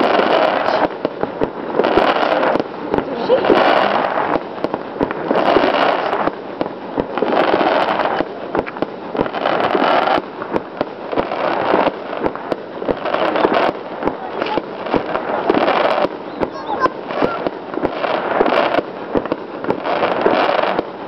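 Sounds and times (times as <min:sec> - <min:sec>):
fireworks bangs and crackling: 0:00.0 - 0:21.0.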